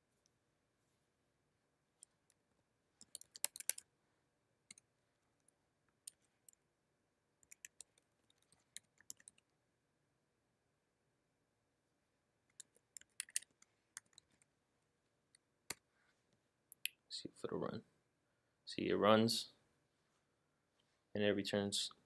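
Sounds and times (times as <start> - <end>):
keyboard keystrokes: 3.0 - 3.8.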